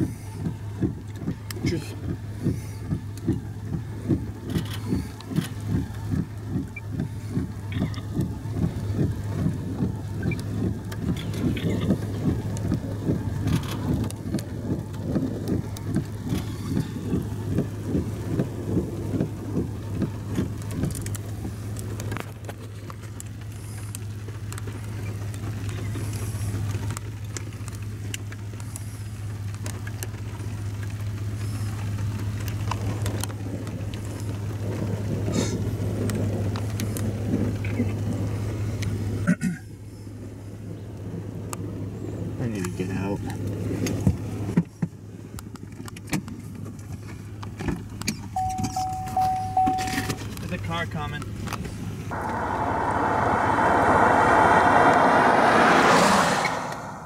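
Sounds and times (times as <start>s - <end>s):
car interior road and wind noise: 0.0s - 57.0s
wind buffeting: 52.0s - 57.0s.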